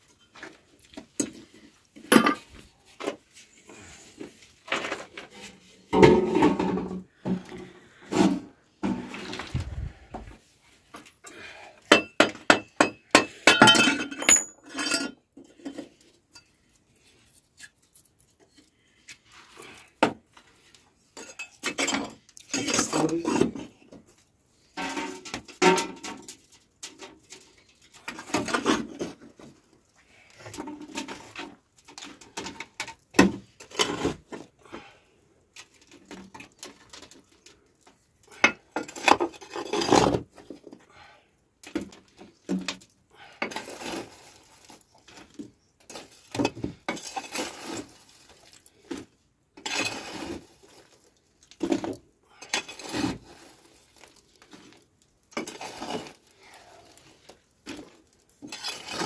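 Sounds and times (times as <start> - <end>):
coals raked against metal lid: 19.1 - 34.5, 35.5 - 40.8, 41.6 - 59.0.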